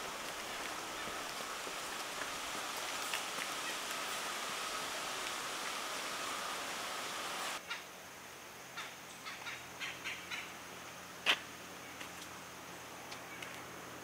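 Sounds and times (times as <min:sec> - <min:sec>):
steady hiss: 0:00.0 - 0:14.0
bird calls: 0:08.8 - 0:10.6.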